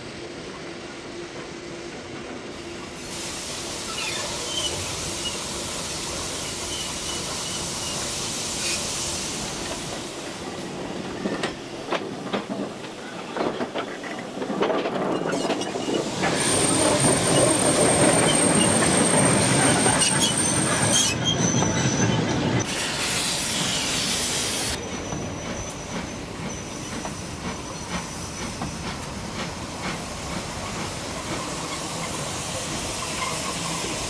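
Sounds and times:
steam hissing: 0:02.6 - 0:12.0, 0:15.5 - 0:21.2, 0:22.6 - 0:34.0.

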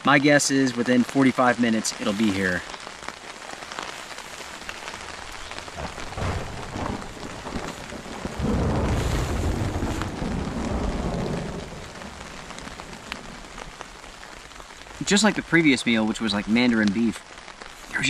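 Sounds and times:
rain on a tarp: 0:00.0 - 0:18.0
thunder rumbling: 0:04.0 - 0:16.8.

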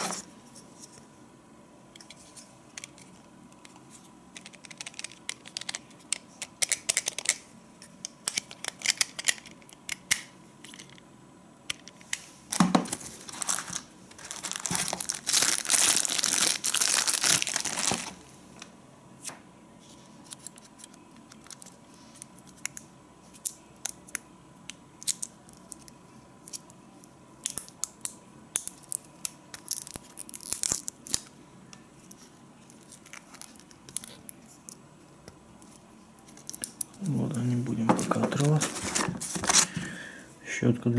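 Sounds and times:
plastic packaging crinkling: 0:12.5 - 0:18.3, 0:28.7 - 0:31.3, 0:32.7 - 0:34.4, 0:36.3 - 0:39.9.

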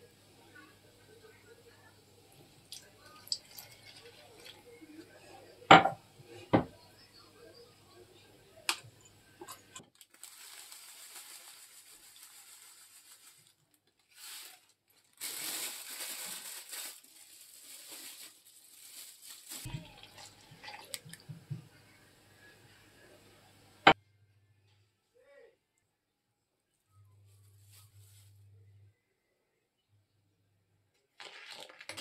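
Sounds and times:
rustling: 0:10.0 - 0:21.3, 0:27.2 - 0:28.6
dry granules pouring into saucepan: 0:10.2 - 0:13.6, 0:31.2 - 0:32.0.

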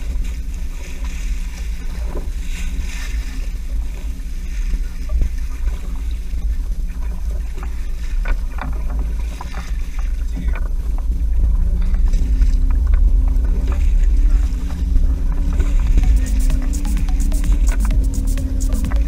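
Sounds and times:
boat engine low rumble: 0:00.0 - 0:19.0
gear knocking and clicking: 0:15.5 - 0:19.0.

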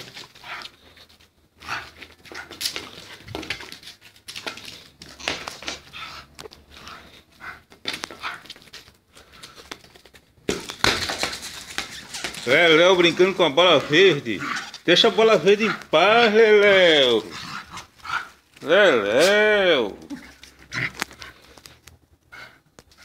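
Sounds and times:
dog panting: 0:00.0 - 0:03.3, 0:04.3 - 0:09.7, 0:22.3 - 0:23.0
ball rolling on concrete: 0:00.0 - 0:23.0.

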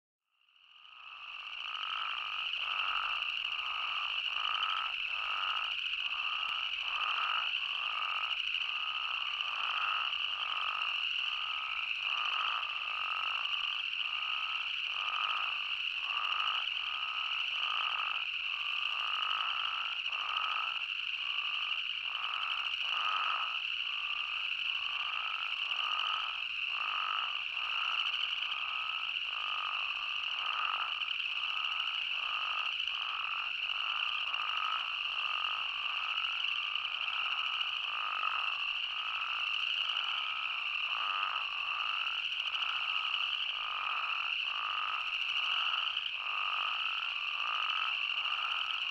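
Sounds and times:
toads calling: 0:00.8 - 0:48.9.

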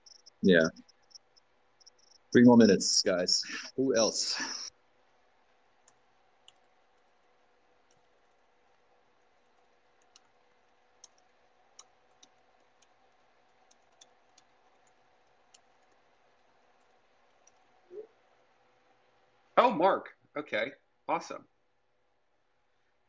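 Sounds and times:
faint clicks: 0:05.8 - 0:18.9.

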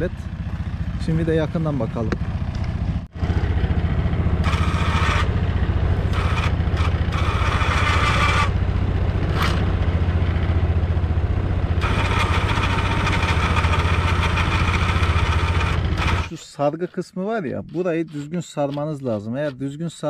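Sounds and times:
atv engine idling: 0:00.0 - 0:07.8, 0:08.5 - 0:16.3
electric winch motor whining: 0:03.2 - 0:09.9, 0:11.6 - 0:16.4.

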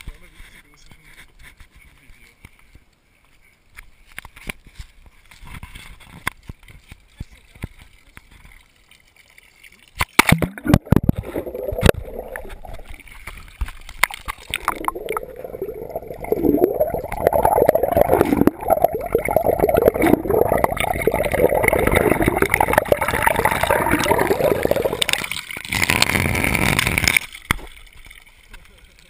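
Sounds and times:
water stream pouring: 0:05.9 - 0:29.0
knocks and splashes: 0:09.9 - 0:26.2
underwater gurgling and bubbling: 0:10.3 - 0:27.4.

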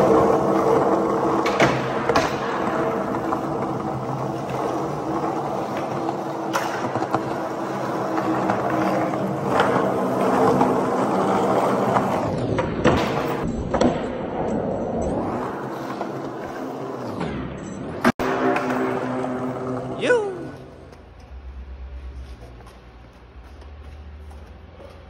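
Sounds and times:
skateboard clacks: 0:00.0 - 0:14.4
skateboard wheels rolling on concrete: 0:00.0 - 0:25.0.

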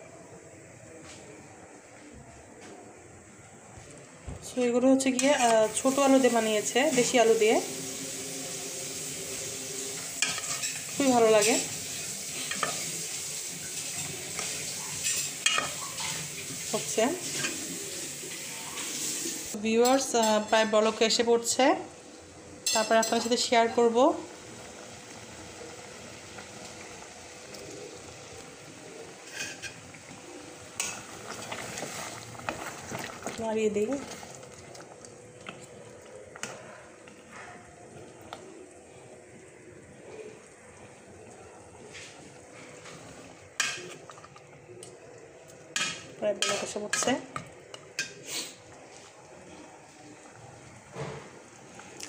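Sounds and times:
pot simmering with low hiss: 0:00.0 - 0:52.0
spoon clinking against pot: 0:15.0 - 0:16.2
spoon scraping a metal pot: 0:29.2 - 0:29.8.

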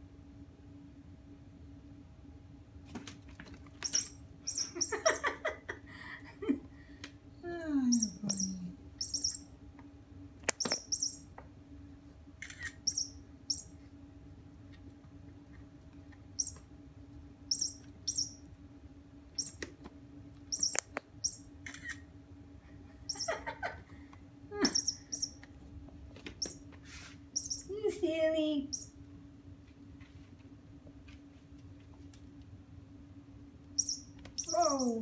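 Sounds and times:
high electronic squeaks: 0:03.8 - 0:05.0, 0:08.0 - 0:09.4, 0:10.6 - 0:11.2, 0:12.9 - 0:13.6, 0:17.5 - 0:18.4, 0:20.5 - 0:21.4, 0:24.7 - 0:25.4, 0:27.4 - 0:27.7, 0:33.8 - 0:35.0
toy motor hum: 0:08.0 - 0:09.4, 0:20.5 - 0:22.0, 0:24.6 - 0:25.4, 0:33.8 - 0:35.0.

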